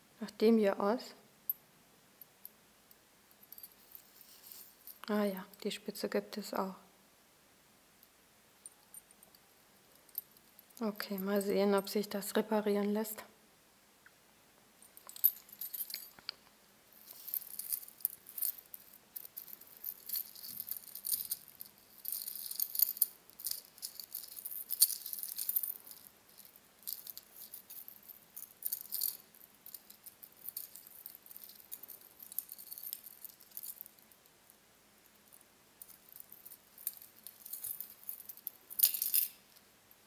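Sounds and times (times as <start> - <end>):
metal chains jingling: 14.9 - 16.3, 17.0 - 34.0, 35.8 - 39.6.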